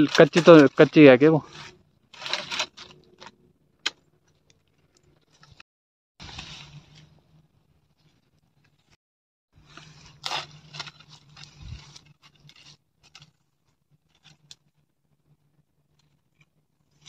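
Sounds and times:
dry branches crackling: 0:00.0 - 0:05.6, 0:06.2 - 0:07.2, 0:09.6 - 0:14.8.

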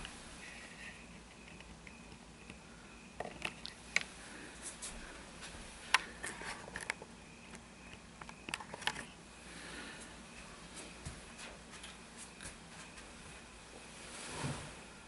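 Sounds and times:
fabric rustle: 0:12.8 - 0:15.0.

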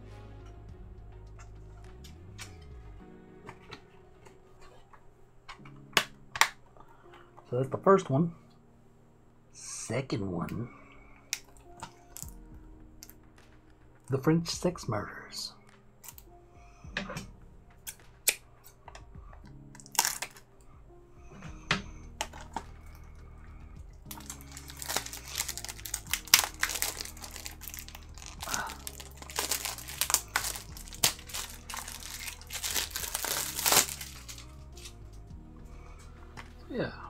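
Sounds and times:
packaging crinkling: 0:19.8 - 0:20.4, 0:24.1 - 0:35.0.

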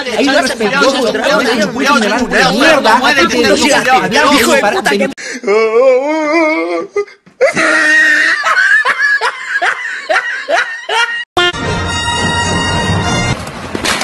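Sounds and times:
person laughing: 0:07.4 - 0:11.6.

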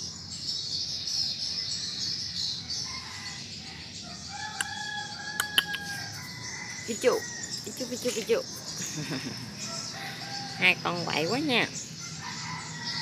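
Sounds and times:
rooster crowing: 0:02.8 - 0:07.8, 0:09.0 - 0:10.8, 0:12.0 - 0:13.0
sharp clicks: 0:05.4 - 0:05.9.

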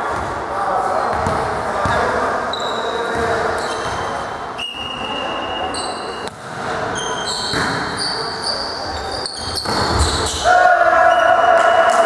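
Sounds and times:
shoe squeaks on court: 0:01.9 - 0:06.3, 0:07.0 - 0:10.4.

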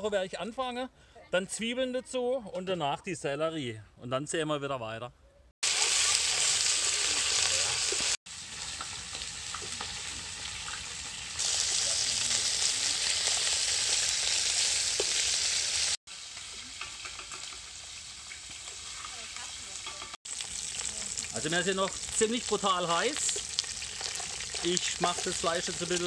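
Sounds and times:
bones sizzling in hot oil: 0:05.6 - 0:26.0.

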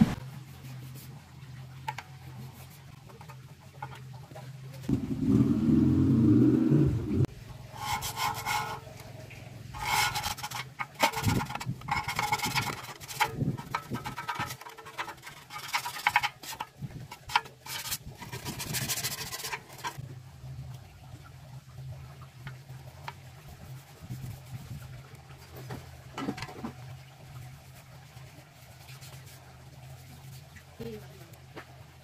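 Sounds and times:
loud low-pitched noise: 0:04.9 - 0:07.3
hand tool scraping: 0:07.7 - 0:09.0, 0:09.7 - 0:20.0.

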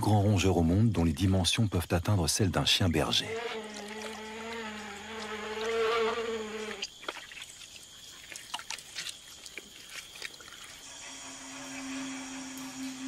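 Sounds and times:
insect buzzing: 0:02.4 - 0:13.0.

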